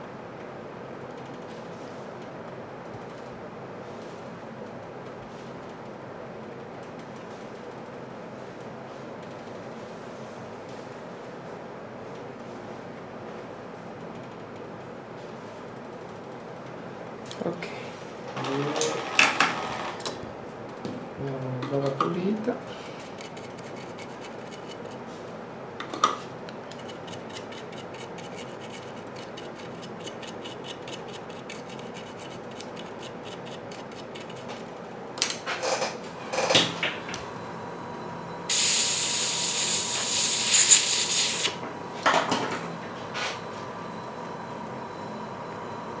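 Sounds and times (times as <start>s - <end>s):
stiff brush scrubbing circuit board: 23.1s - 25.0s, 26.8s - 34.6s
loud hiss: 38.5s - 41.6s.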